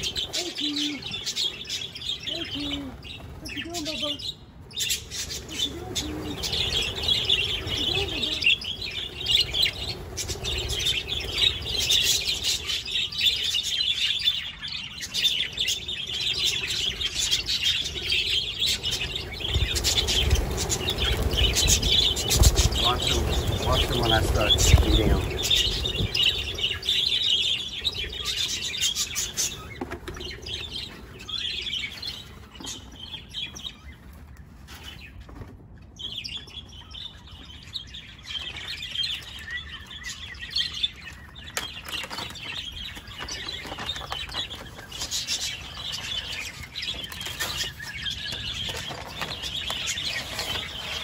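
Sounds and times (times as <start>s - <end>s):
wings flapping: 0.0s - 13.7s, 16.3s - 32.9s, 41.5s - 51.0s
budgerigars chattering and chirping: 0.0s - 34.0s, 35.8s - 51.0s.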